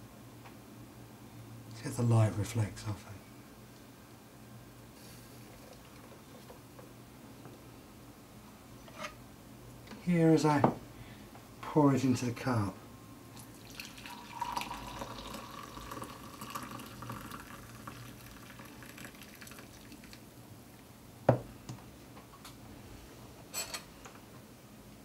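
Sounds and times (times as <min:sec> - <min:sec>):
coffee pouring into a mug: 0:13.4 - 0:20.3.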